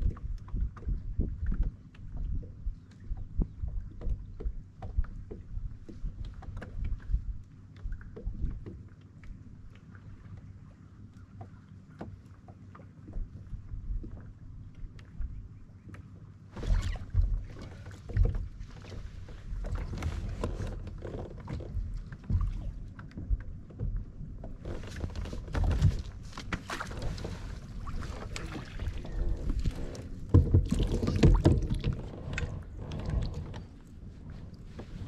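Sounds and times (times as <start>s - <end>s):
knocks and clicks on plastic kayak: 28.0s - 33.8s.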